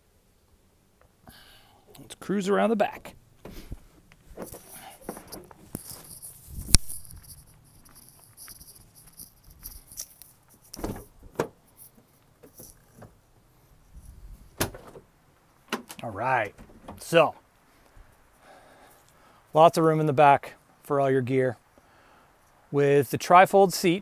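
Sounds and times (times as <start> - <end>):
footsteps on gravel: 3.6 - 10.2.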